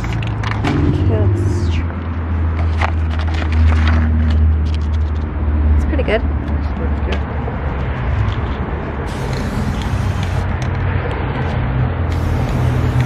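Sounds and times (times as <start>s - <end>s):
low rumble: 0.4s - 4.6s
spray paint can hissing: 9.1s - 10.6s, 12.1s - 13.0s.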